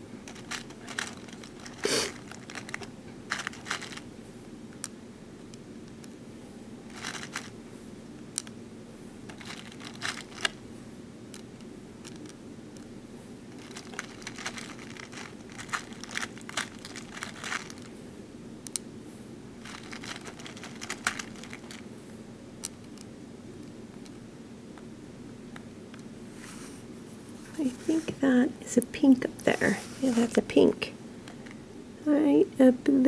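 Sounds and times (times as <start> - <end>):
steady low hum: 0.0 - 33.0
plastic beads clicking and rattling: 0.2 - 4.0, 6.9 - 7.5, 9.3 - 10.6, 13.6 - 17.9, 19.6 - 21.8.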